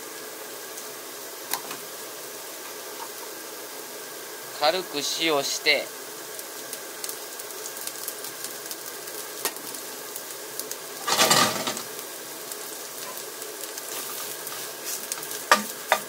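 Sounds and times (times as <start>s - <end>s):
mushrooms sizzling in a frying pan: 0.0s - 16.0s
pan shaken with mushrooms sliding: 11.0s - 11.9s, 13.8s - 15.8s.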